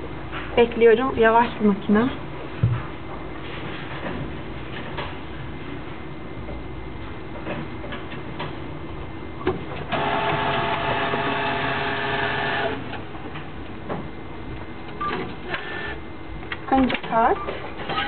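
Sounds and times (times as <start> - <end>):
cash machine mechanism whirring: 9.9 - 13.0, 15.1 - 16.0, 17.8 - 18.0.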